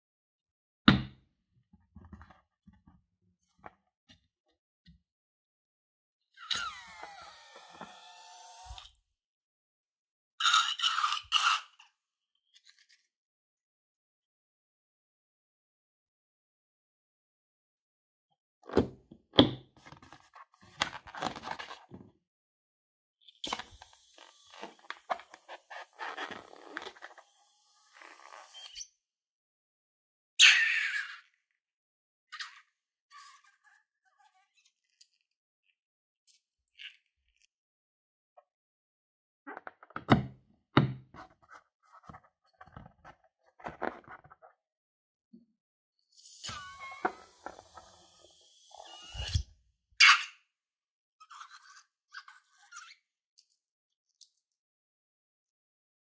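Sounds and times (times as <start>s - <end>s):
balloon rubber rubbing and scraping: 23.5s - 27.2s.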